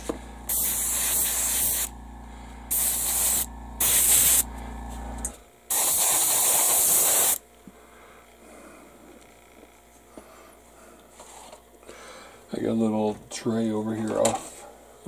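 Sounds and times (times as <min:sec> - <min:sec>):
steady low hum: 0:00.0 - 0:15.0
airbrush spraying hiss: 0:00.5 - 0:01.9, 0:02.7 - 0:04.5, 0:05.7 - 0:07.4.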